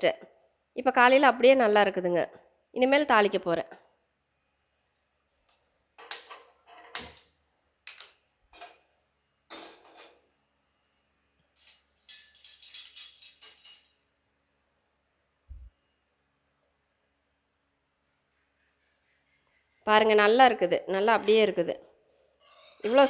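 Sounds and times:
pans and utensils clattering: 0:09.5 - 0:10.2, 0:11.6 - 0:14.0.

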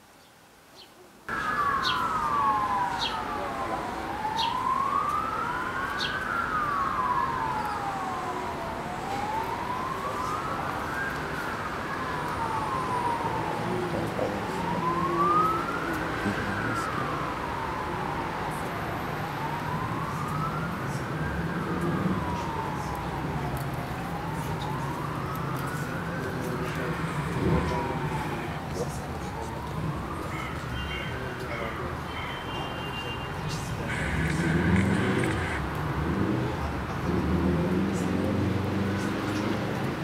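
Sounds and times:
siren wailing: 0:01.3 - 0:40.0.

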